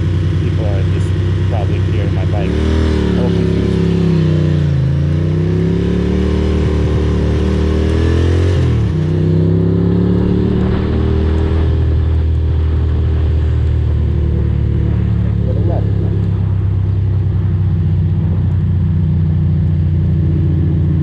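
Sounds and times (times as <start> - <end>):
motorcycle engine revving: 0.0 - 21.0
wind: 0.0 - 21.0.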